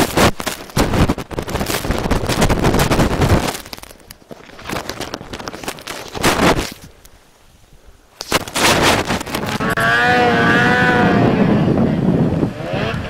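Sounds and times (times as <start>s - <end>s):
snow and wind rushing: 0.0s - 3.8s, 4.5s - 13.0s
sharp crackling hits: 0.0s - 4.2s.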